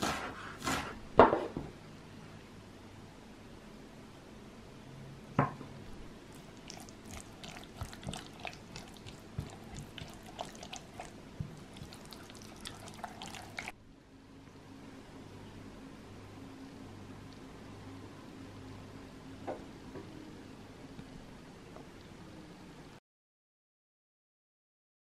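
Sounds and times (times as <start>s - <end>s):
spatula stirring thick sauce: 6.4s - 13.8s.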